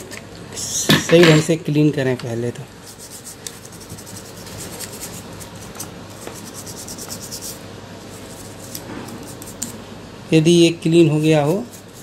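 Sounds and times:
scratchy rubbing on circuit board: 2.8 - 9.8, 10.8 - 12.0.

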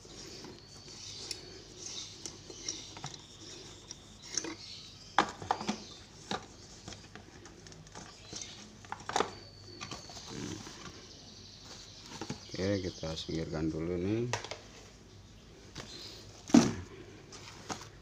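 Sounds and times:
bulb unscrewed from socket: 0.4 - 4.7.

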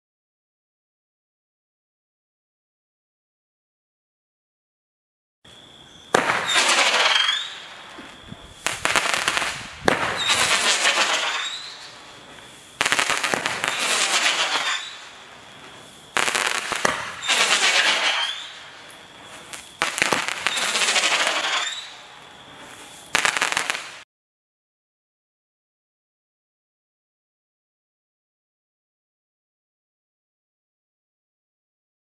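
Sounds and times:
firework crackling: 6.1 - 24.0.

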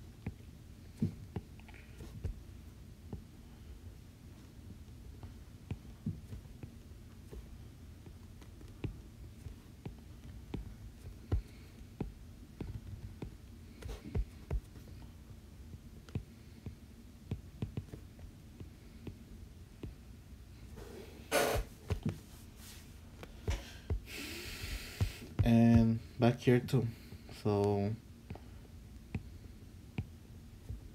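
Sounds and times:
low steady hum: 0.0 - 30.9.

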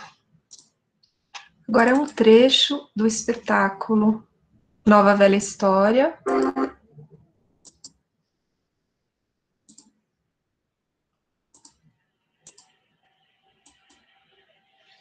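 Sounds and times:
computer mouse clicks: 0.0 - 0.8, 1.4 - 2.2, 7.6 - 8.0, 9.6 - 10.0, 11.5 - 11.8, 12.4 - 12.8, 13.6 - 14.0.

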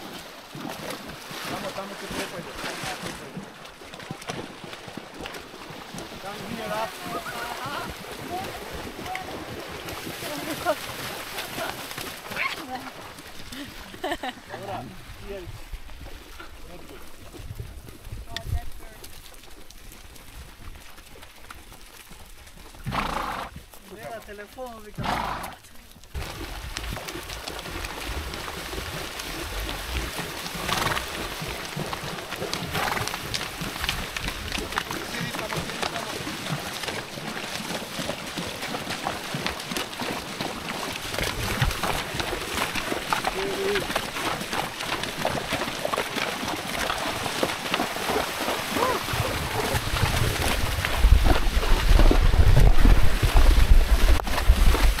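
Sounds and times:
water splashing and sloshing: 0.0 - 55.0
wind buffeting microphone: 48.8 - 55.0.

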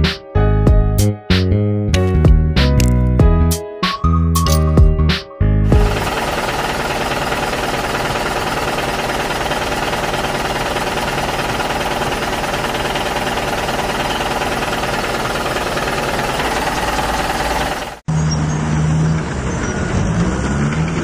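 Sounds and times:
simulated diesel engine idling: 5.8 - 18.0.

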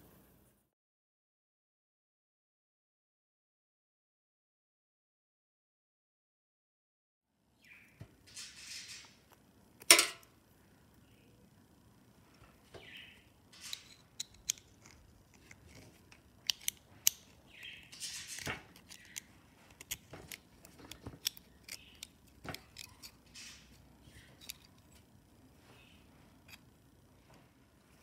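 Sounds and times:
small metal clicks and scrapes: 13.5 - 25.1.

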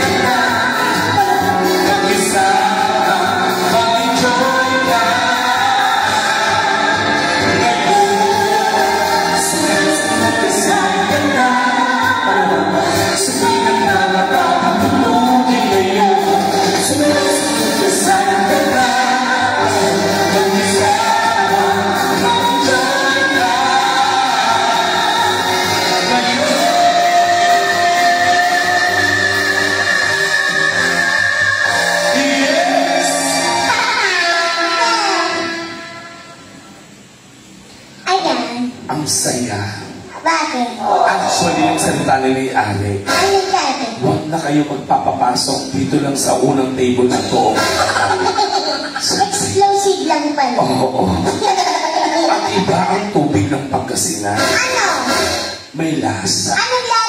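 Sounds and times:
person singing into microphone: 0.0 - 36.2
backing music: 0.0 - 37.4, 40.0 - 49.7, 50.9 - 56.2.

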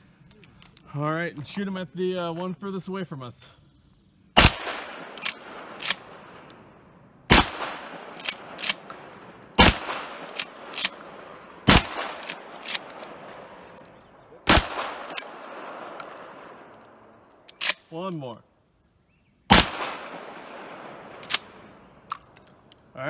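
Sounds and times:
shotgun shots: 4.4 - 6.6, 7.3 - 17.8, 19.5 - 21.8
faint echoing cracks: 4.4 - 6.7, 7.3 - 17.8.

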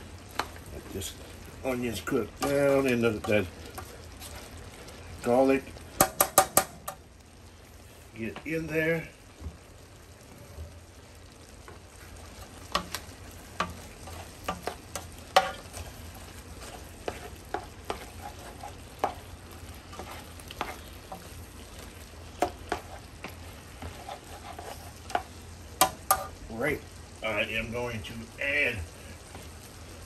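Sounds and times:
food sizzling in oil: 0.0 - 30.0
spoon scraping a pot: 13.6 - 15.9, 16.6 - 19.2, 19.9 - 21.3, 22.4 - 26.3.

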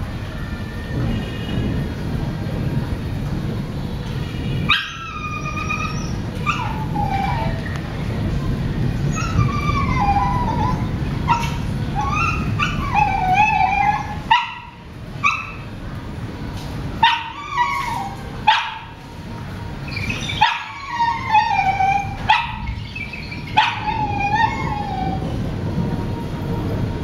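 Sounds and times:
dog barking and yelping: 4.7 - 7.6, 9.1 - 15.7, 17.0 - 19.0, 19.9 - 25.3.

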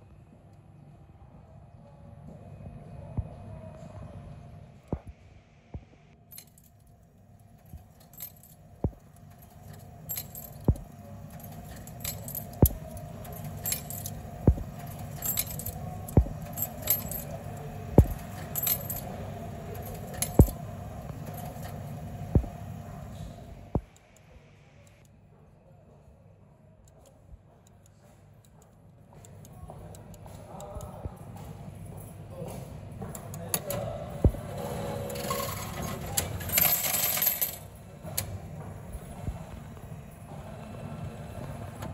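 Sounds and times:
coins clinking in machine: 6.3 - 22.6, 33.5 - 38.3.

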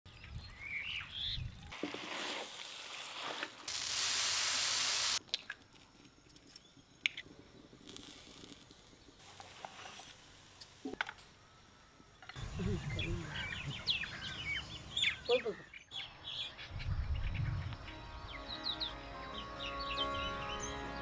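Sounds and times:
crackling on a hot griddle: 1.8 - 5.2, 7.0 - 11.2
loud steady hiss: 1.9 - 5.2
bird chirping: 10.9 - 21.0.

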